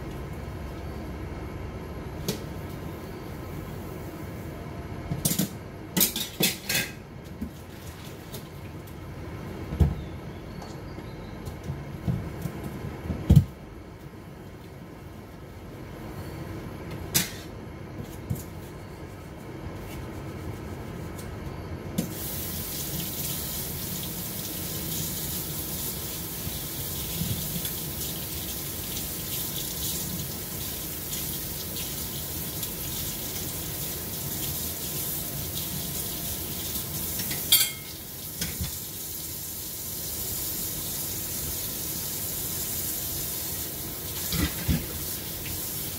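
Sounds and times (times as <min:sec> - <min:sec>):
water running from a tap: 0:22.1 - 0:45.9.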